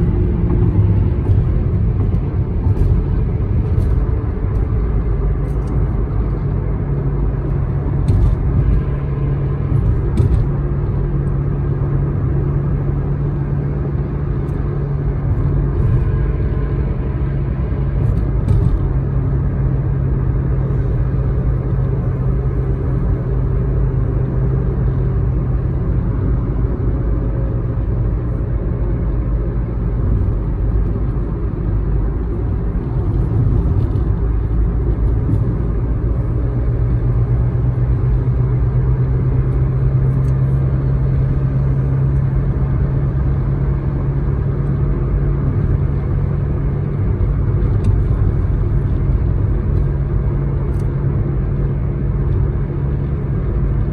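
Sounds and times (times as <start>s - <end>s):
car cabin road noise: 0.0s - 53.9s.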